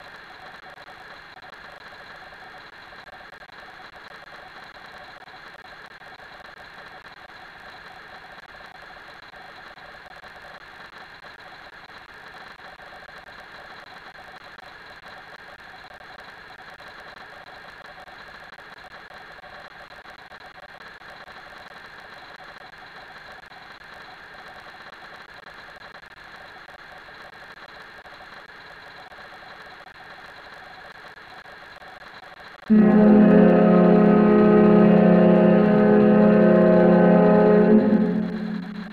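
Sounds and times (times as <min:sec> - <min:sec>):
mechanical hum: 0:00.0 - 0:38.9
faint held tones: 0:32.7 - 0:38.9
loud organ music: 0:32.7 - 0:38.9.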